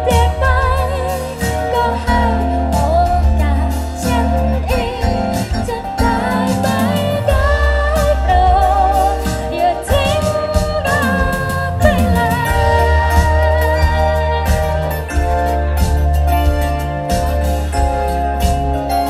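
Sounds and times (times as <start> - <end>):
person singing: 0.0 - 15.1
band playing pop song: 0.0 - 19.0
steady drum beat: 0.0 - 19.0.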